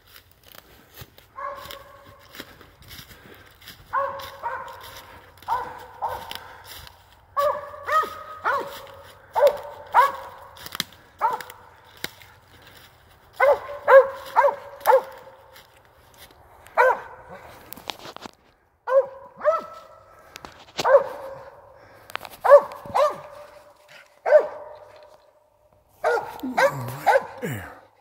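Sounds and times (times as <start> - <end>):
dog barking: 1.4 - 2.3, 3.9 - 6.6, 7.4 - 10.6, 11.2 - 11.8, 13.4 - 15.4, 16.8 - 17.4, 18.9 - 20.0, 20.8 - 21.7, 22.4 - 25.1, 26.0 - 27.4.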